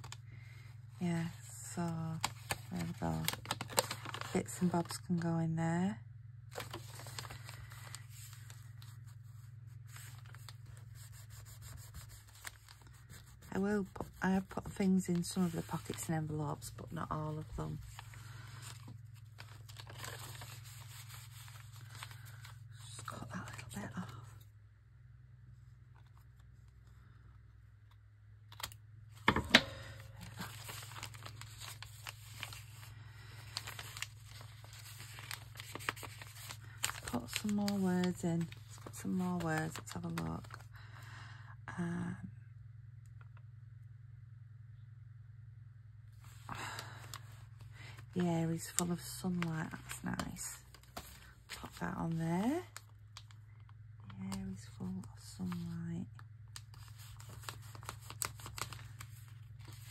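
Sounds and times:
steady low hum: 0:00.0 - 0:59.9
paper journal pages rustling: 0:02.2 - 0:04.7, 0:06.5 - 0:22.8, 0:29.2 - 0:40.6, 0:46.2 - 0:52.8, 0:55.4 - 0:55.6, 0:56.6 - 0:59.9.

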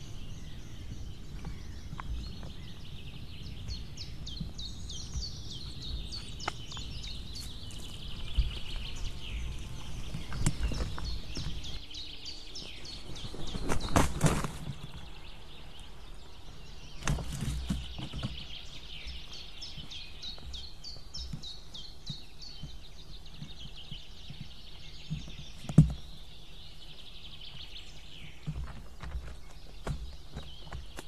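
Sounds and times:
soft knocks in nest: 0:09.9 - 0:11.8, 0:13.4 - 0:15.0, 0:17.0 - 0:18.6, 0:23.4 - 0:26.1.

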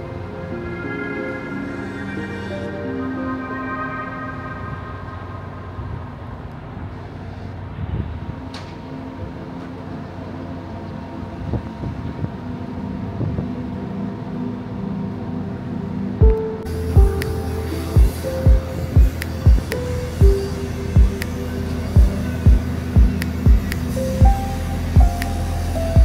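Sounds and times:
construction machinery engines droning: 0:00.0 - 0:26.0
music beat: 0:16.2 - 0:26.0.

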